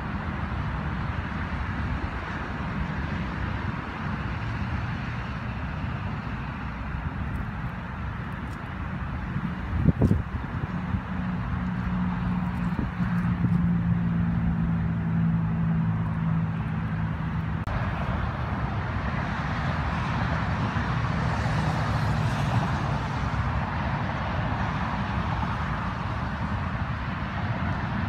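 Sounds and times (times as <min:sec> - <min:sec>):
low engine hum: 0:00.0 - 0:28.0
road traffic rushing: 0:00.0 - 0:28.0.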